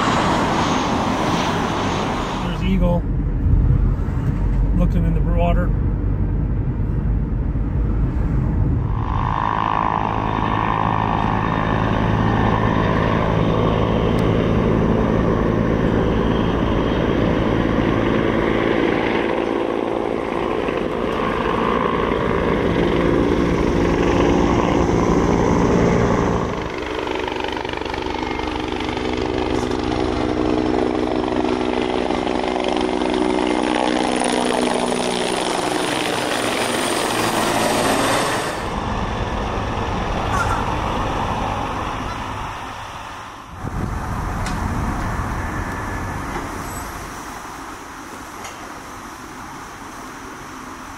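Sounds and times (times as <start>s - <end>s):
helicopter engine whine: 0.0s - 47.6s
helicopter rotor beat: 0.0s - 47.6s.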